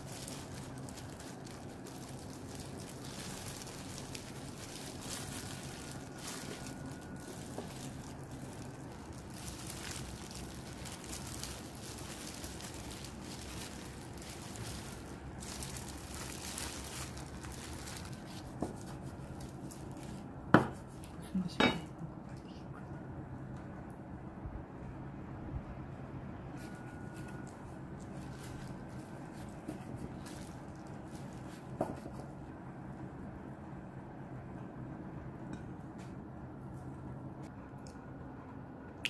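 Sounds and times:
gloved hands rustling: 0:00.0 - 0:20.2.

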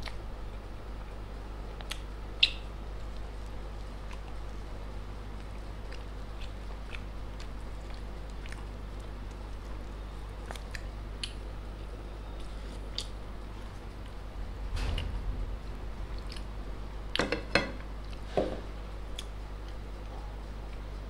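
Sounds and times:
steady low hum: 0:00.0 - 0:21.0
soft chewing: 0:01.8 - 0:04.7, 0:05.3 - 0:14.2.

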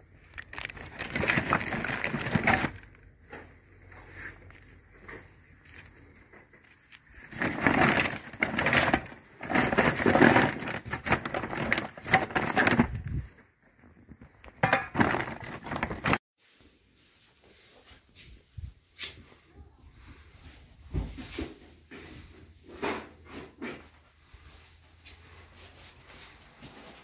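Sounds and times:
paper bag rustling: 0:00.0 - 0:03.2, 0:03.8 - 0:16.2.

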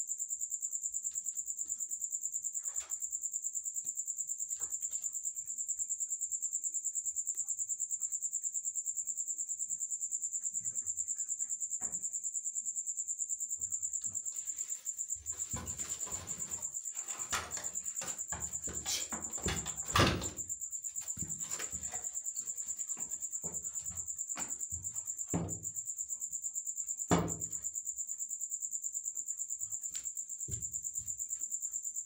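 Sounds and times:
crickets chirping: 0:00.0 - 0:32.0
rustling and scuffling: 0:14.2 - 0:25.0
knock: 0:15.3 - 0:20.5, 0:23.0 - 0:25.8, 0:27.1 - 0:27.6, 0:30.4 - 0:30.8.

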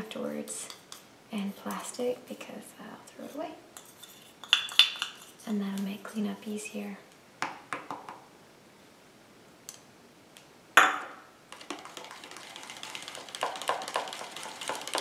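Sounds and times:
metal cup clink: 0:03.8 - 0:05.3
whisk ticking against plastic cup: 0:11.5 - 0:15.0
plastic spoon scraping metal cup: 0:11.6 - 0:15.0.

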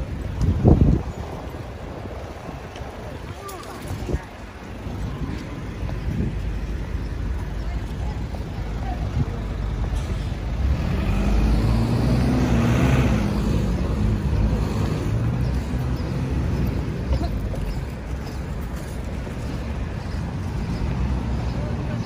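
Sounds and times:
road traffic hum: 0:00.0 - 0:22.0
vehicle engine passing close: 0:09.5 - 0:17.1.

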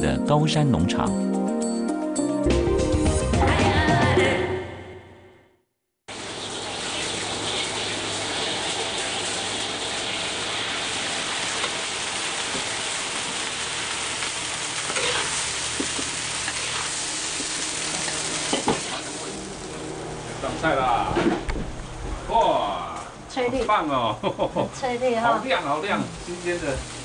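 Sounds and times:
beans sizzling in a wok: 0:06.1 - 0:20.8, 0:25.2 - 0:27.0.

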